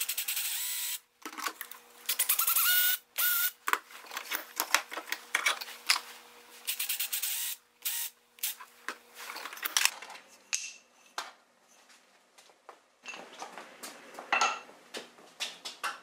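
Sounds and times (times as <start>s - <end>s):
cordless drill boring wood: 0.0s - 1.0s, 2.1s - 3.5s, 6.7s - 8.6s.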